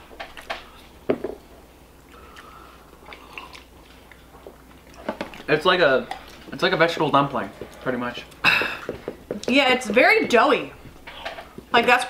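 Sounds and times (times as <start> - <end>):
people chewing: 0.1 - 1.0, 2.0 - 10.0.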